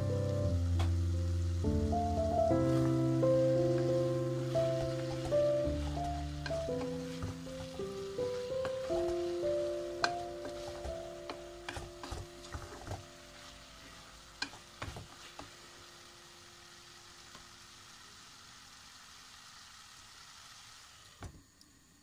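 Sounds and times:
frying sizzle: 0.0 - 22.0
wooden spatula scraping a pot: 4.7 - 9.4, 10.0 - 15.5.

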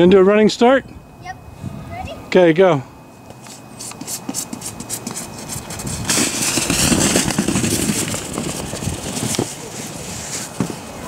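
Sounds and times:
sled sliding on snow: 4.0 - 11.0.

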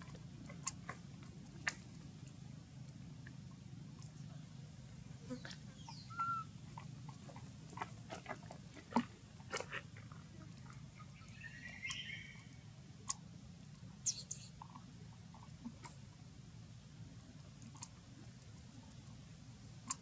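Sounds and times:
steady low hum: 0.0 - 20.0
animal chirp: 5.3 - 6.6, 14.0 - 14.7.

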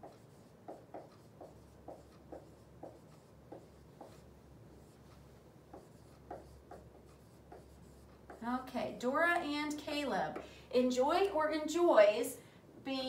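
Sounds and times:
marker squeaking on whiteboard: 0.0 - 8.5.

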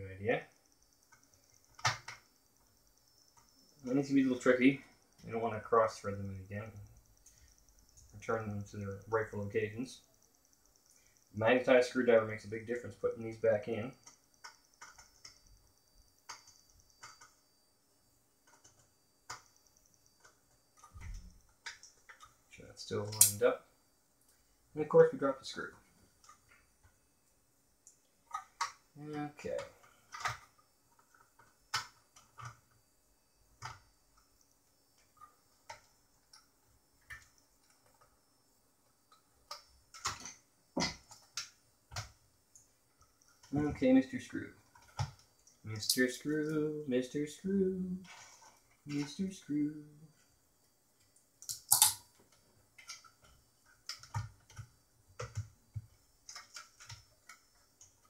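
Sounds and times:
small screws clicking: 51.4 - 52.1.

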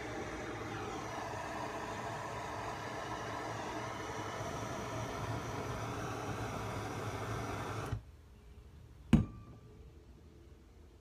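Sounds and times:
gas torch flame hissing: 0.0 - 8.0.

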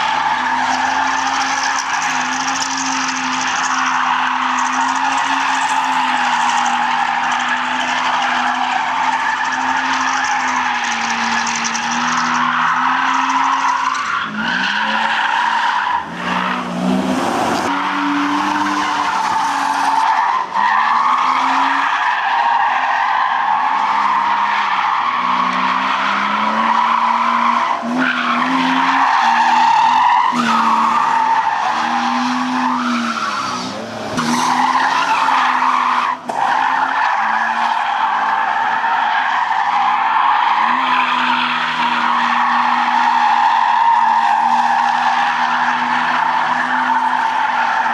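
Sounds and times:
car engine revving: 0.0 - 21.8
tyres squealing: 0.0 - 47.9.

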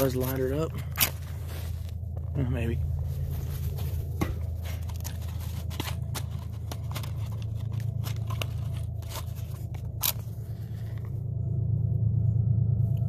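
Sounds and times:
matches scratching on matchbox: 3.2 - 11.0.

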